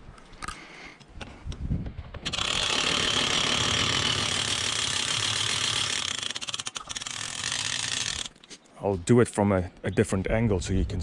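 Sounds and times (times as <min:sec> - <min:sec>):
winch ratchet clicking: 0:02.2 - 0:08.4.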